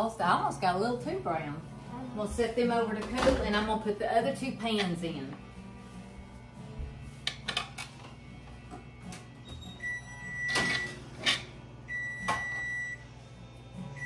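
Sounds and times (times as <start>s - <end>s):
long electronic oven beeps: 9.4s - 11.1s, 11.8s - 14.0s.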